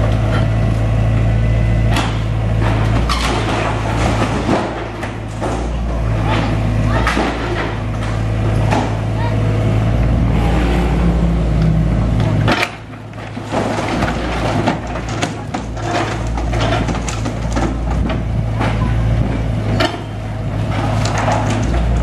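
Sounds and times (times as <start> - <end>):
excavator diesel engine running: 0.0 - 22.0
falling debris clatter: 1.9 - 9.0, 12.2 - 22.0
wood cracking: 12.4 - 18.7, 19.8 - 22.0.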